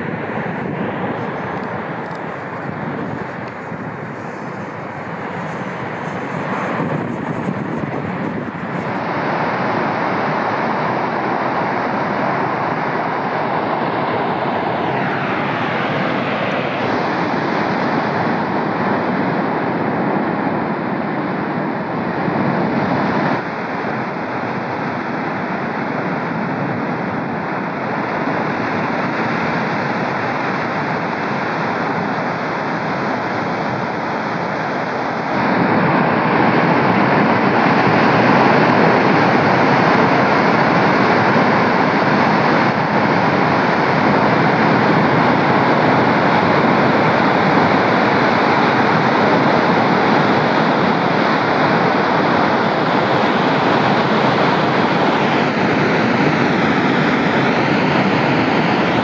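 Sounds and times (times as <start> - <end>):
volcano vent rushing: 0.0 - 9.2.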